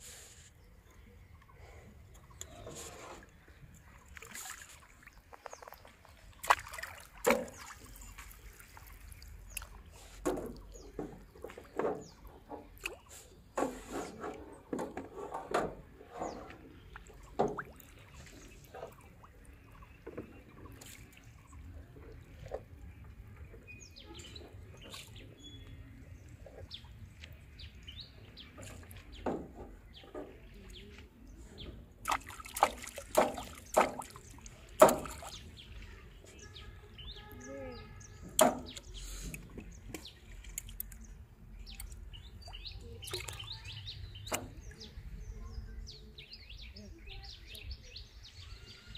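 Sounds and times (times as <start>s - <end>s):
birds chirping: 0.5s - 13.8s, 16.0s - 48.9s
small splashes in water: 2.4s - 14.3s, 16.2s - 23.2s, 31.9s - 35.9s, 37.7s - 44.9s
knocks in metal boat: 38.3s - 38.8s.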